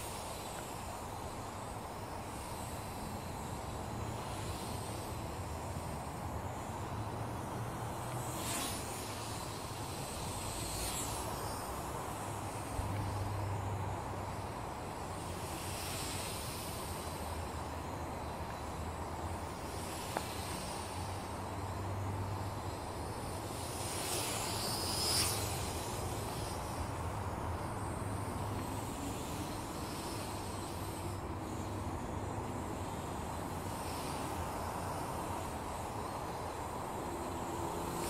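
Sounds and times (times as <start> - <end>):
outdoor hiss: 0.0 - 38.0
toy drone propellers buzzing: 0.0 - 38.0.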